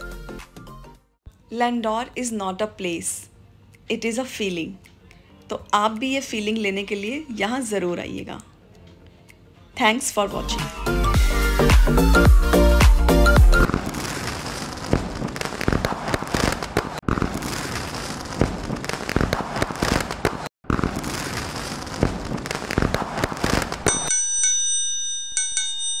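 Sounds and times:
firework-like crackling and popping: 0:13.6 - 0:24.0.

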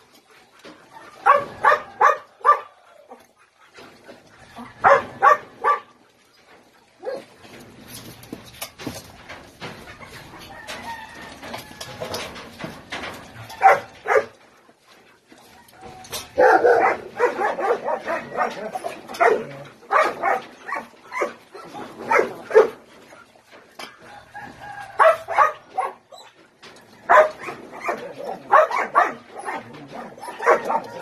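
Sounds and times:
puppies yipping and barking: 0:00.0 - 0:31.0.

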